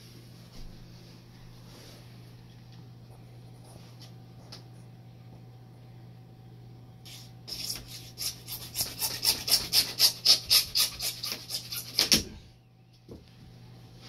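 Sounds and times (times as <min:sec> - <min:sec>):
hacksaw cutting plastic pipe: 0:07.1 - 0:12.3.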